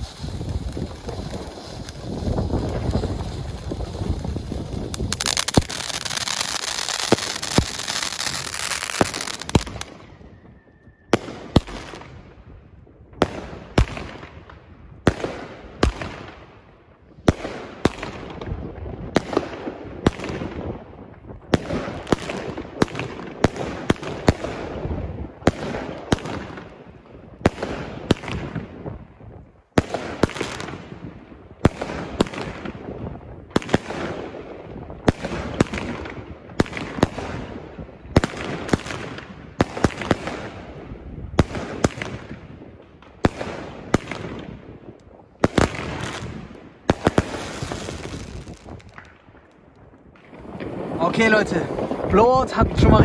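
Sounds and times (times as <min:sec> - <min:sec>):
firework reports: 0:00.0 - 0:10.4, 0:50.2 - 0:53.0
firework crackle: 0:00.0 - 0:12.1, 0:21.6 - 0:53.0.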